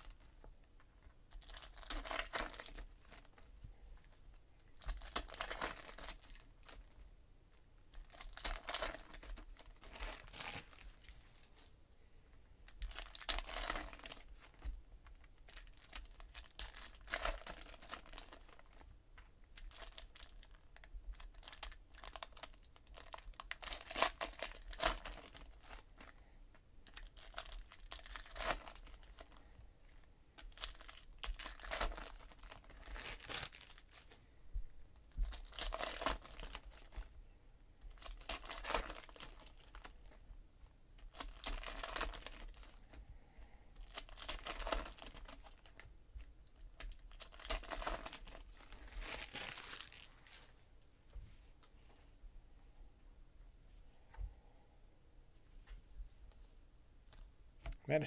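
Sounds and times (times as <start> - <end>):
plastic wrappers tearing and crinkling: 0.0 - 0.3, 1.3 - 3.5, 4.6 - 7.0, 7.8 - 11.6, 12.7 - 26.2, 26.8 - 29.4, 30.4 - 34.2, 35.0 - 37.1, 37.9 - 40.2, 41.0 - 43.0, 43.8 - 50.5.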